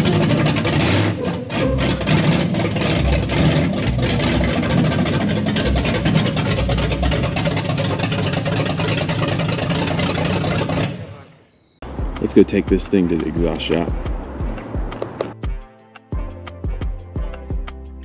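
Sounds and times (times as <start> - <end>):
loud engine rumble: 0.0 - 15.4.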